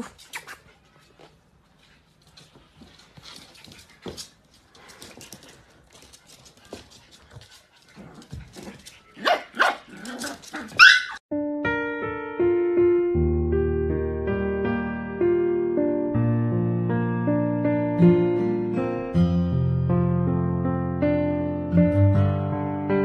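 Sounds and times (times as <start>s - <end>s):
light taps and scuffles: 1.0s - 9.0s
puppy yapping: 9.2s - 11.2s
piano music: 10.8s - 23.0s.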